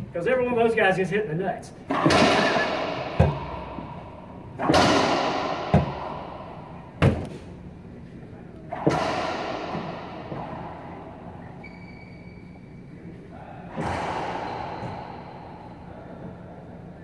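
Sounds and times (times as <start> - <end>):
racquetball bangs echoing in court: 1.8 - 7.8, 8.6 - 12.8, 13.6 - 16.9.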